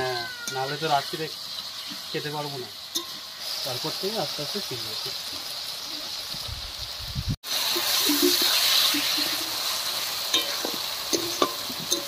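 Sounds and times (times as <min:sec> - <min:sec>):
vegetables sizzling in oil: 0:00.0 - 0:12.0
spatula clinking on pan: 0:10.3 - 0:12.0.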